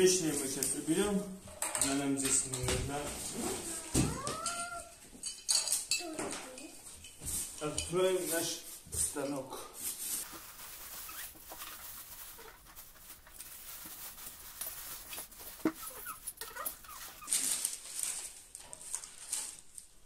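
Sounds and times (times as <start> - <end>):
plastic wrapping crinkling: 9.8 - 20.0
cardboard scraping: 10.2 - 18.4
short squeaks: 15.6 - 17.6.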